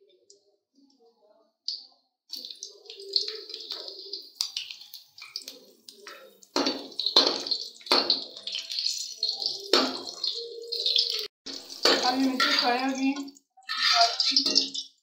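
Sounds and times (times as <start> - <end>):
chillies sizzling in hot oil: 2.3 - 15.0
spoon scraping metal pan: 11.6 - 14.9.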